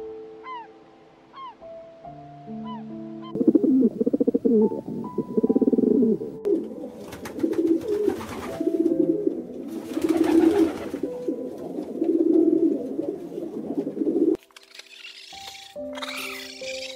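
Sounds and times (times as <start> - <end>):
pigeon cooing low pulsing coos: 3.2 - 14.4.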